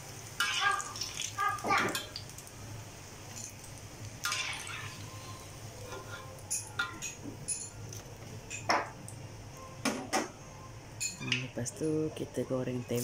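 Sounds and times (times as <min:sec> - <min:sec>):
oil sizzling: 0:00.0 - 0:09.2.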